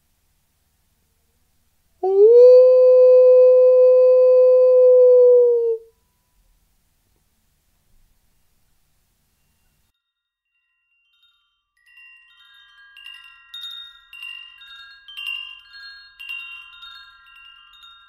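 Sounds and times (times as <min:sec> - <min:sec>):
wind chimes ringing: 0:09.4 - 0:18.0.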